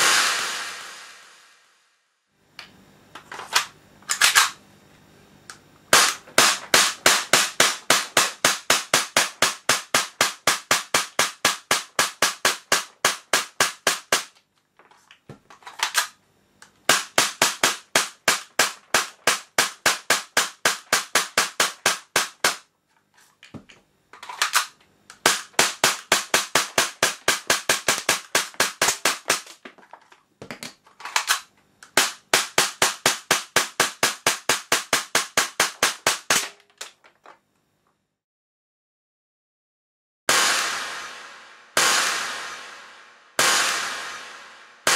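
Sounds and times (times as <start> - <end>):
airsoft pistol shots: 5.9 - 14.3, 16.9 - 22.6, 24.3 - 29.6, 31.2 - 36.6, 40.3 - 44.9.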